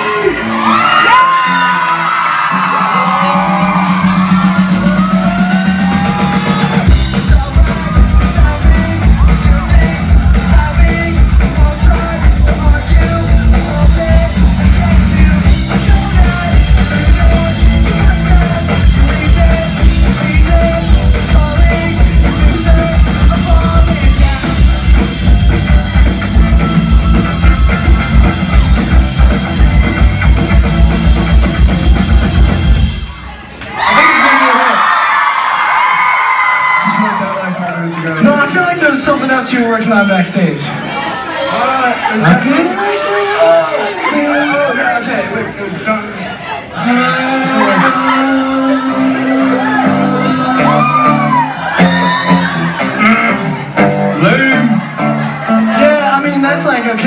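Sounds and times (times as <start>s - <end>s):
rock band with electric guitars: 0.0s - 34.0s, 34.8s - 57.0s
fans yelling and whooping: 0.0s - 57.0s
drums heavy beat: 1.9s - 33.4s.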